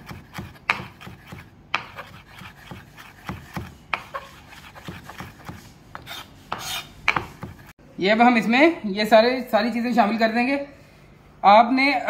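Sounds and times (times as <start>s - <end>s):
knife chopping on wooden board: 0.0s - 7.7s.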